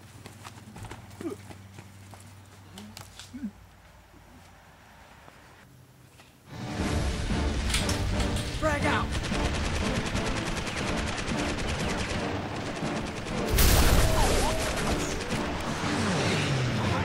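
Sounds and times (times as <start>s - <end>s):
rapid machine-gun fire: 8.9s - 16.2s
burst of noise: 13.5s - 15.2s.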